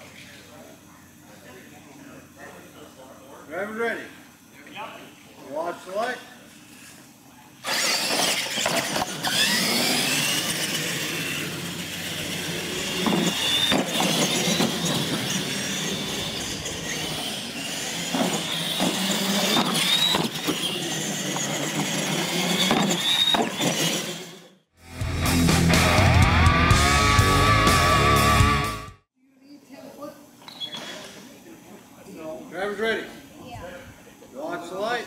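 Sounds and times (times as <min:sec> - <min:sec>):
toy truck motors whining: 0:07.6 - 0:24.7.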